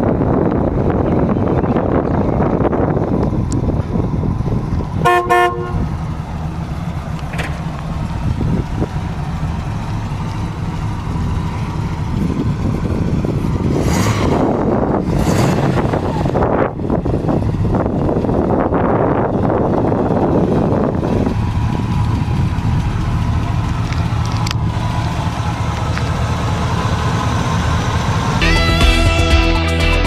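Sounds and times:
car engine running: 0:00.0 - 0:30.0
car horn honks: 0:05.0 - 0:05.9.

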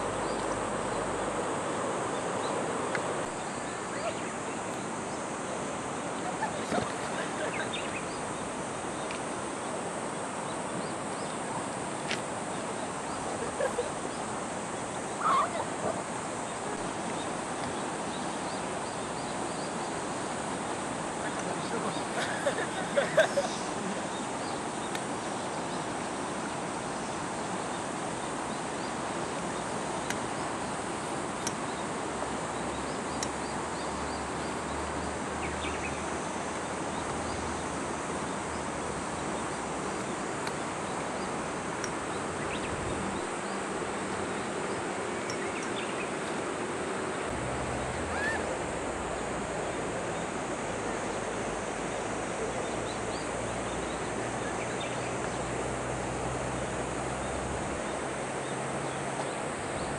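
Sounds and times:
river rushing: 0:00.0 - 0:59.9
faint ticks: 0:30.0 - 0:30.3, 0:31.4 - 0:31.7, 0:45.2 - 0:45.8.

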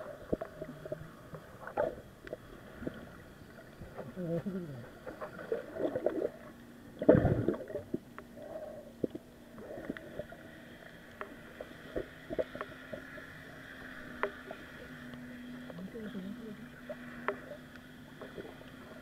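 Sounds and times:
faint steady hum: 0:00.0 - 0:19.0
muffled underwater clicks and knocks: 0:11.0 - 0:13.3, 0:14.0 - 0:15.8.

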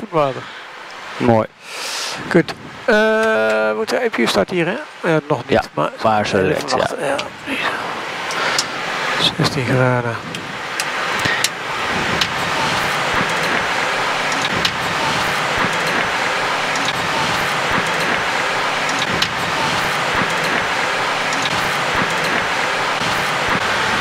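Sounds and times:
aircraft cockpit taxiing noise: 0:10.2 - 0:24.0.

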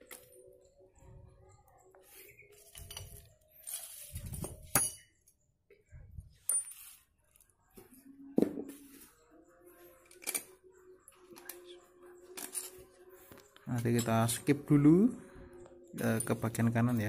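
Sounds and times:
metal parts clinking and rattling: 0:02.6 - 0:05.3, 0:06.3 - 0:07.0, 0:10.0 - 0:10.6, 0:12.2 - 0:12.9.

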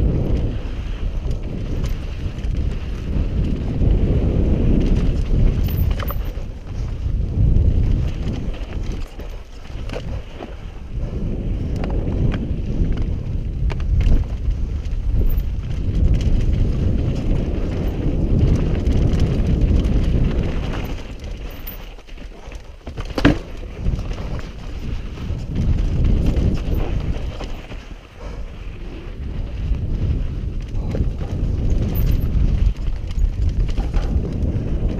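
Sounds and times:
bike knocks and rattles: 0:00.0 - 0:10.8, 0:11.6 - 0:28.0, 0:29.6 - 0:34.9
wind on microphone: 0:00.0 - 0:34.9
tyres crunching over rock: 0:15.8 - 0:28.0.

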